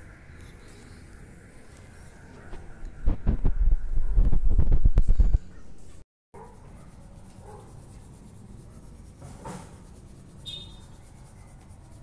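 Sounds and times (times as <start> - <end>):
marker scratching on paper: 6.4 - 12.0
short high squeak: 10.4 - 10.9.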